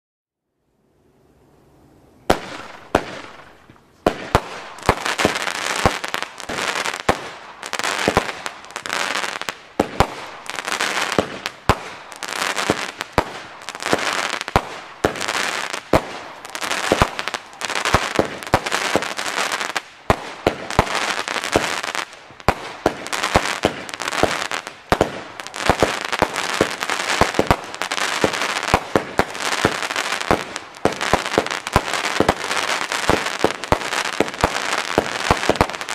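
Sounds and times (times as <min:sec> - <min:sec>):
fireworks bangs: 0:02.3 - 0:35.9.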